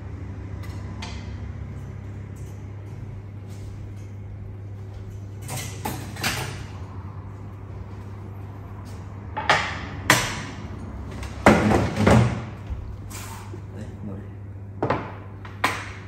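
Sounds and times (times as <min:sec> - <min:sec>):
steady low hum: 0:00.0 - 0:16.0
kitchen cabinet knocks and clatters: 0:11.4 - 0:12.6.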